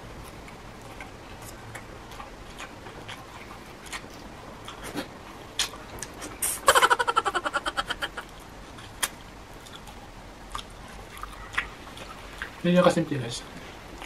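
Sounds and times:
person sucking: 0:06.2 - 0:06.8.

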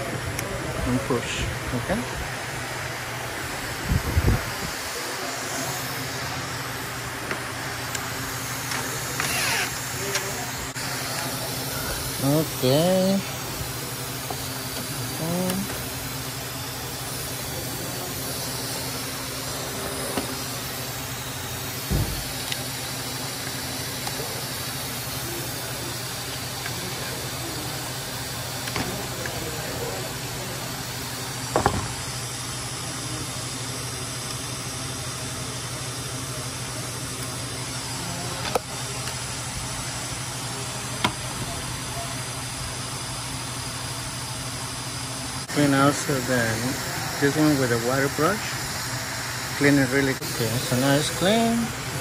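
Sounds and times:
background hum and hiss: 0:00.0 - 0:52.0.

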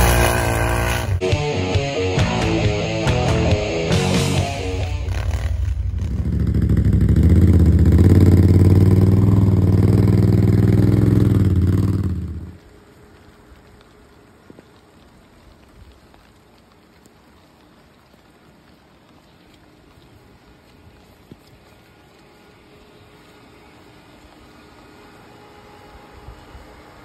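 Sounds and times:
loud atv engine revving: 0:00.0 - 0:01.3, 0:03.9 - 0:12.5.

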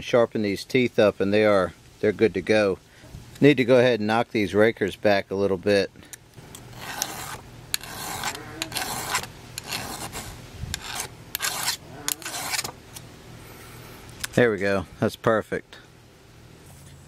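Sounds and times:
file rasping on saw chain: 0:06.7 - 0:12.7.

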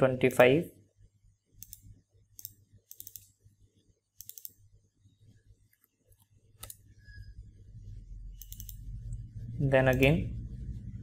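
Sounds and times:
low steady hum: 0:00.0 - 0:11.0
faint computer mouse clicks: 0:01.6 - 0:01.8, 0:02.4 - 0:03.3, 0:04.2 - 0:04.6, 0:05.7 - 0:06.8, 0:08.4 - 0:08.8.

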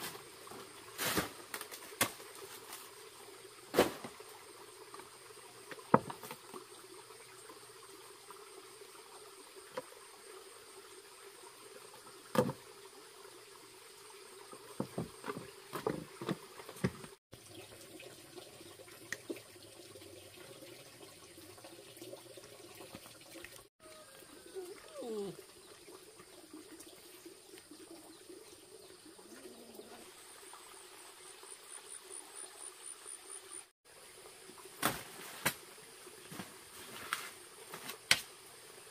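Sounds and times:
insect drone: 0:00.0 - 0:15.6
insect chirping: 0:23.9 - 0:34.7.

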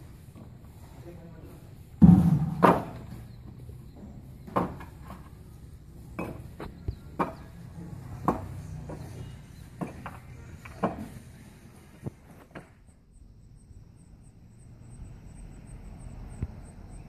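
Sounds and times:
sharp construction knocks: 0:02.0 - 0:03.2.

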